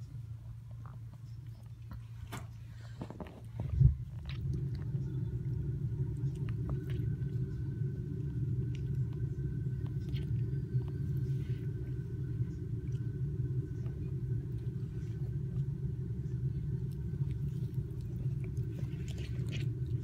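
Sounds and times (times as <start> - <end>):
cat purring: 0.7 - 20.0
cat chewing grass clicks: 3.2 - 20.0.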